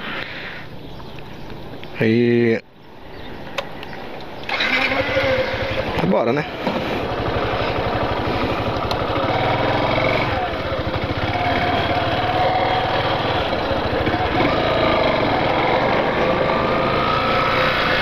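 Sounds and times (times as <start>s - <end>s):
motorcycle engine pulling away: 4.5s - 18.0s.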